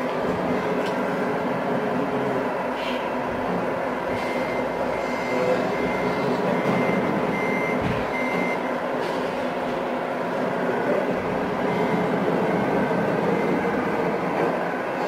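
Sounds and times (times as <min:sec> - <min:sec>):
steady background hum: 0:00.0 - 0:15.0
electronic reversing beeper: 0:04.2 - 0:08.6.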